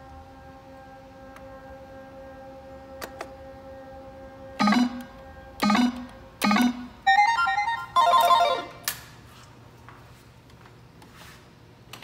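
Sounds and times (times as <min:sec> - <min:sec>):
slot machine beeping melodies: 0:04.6 - 0:08.8.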